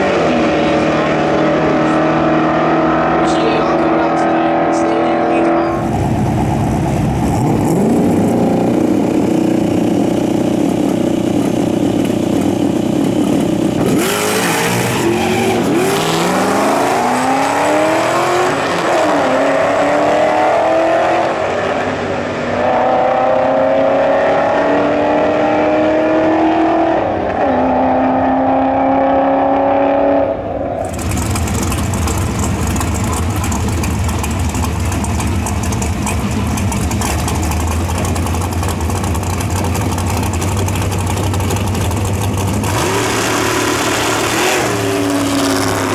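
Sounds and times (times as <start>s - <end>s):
car engines revving and accelerating: 0.0s - 45.9s
dragster engine idling: 30.9s - 42.7s.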